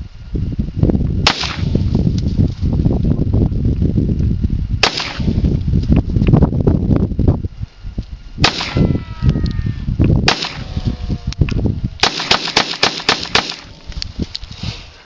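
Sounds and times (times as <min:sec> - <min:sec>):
pistol shots: 0:01.3 - 0:01.8, 0:04.8 - 0:05.4, 0:08.4 - 0:08.8, 0:10.2 - 0:10.7, 0:12.0 - 0:13.7.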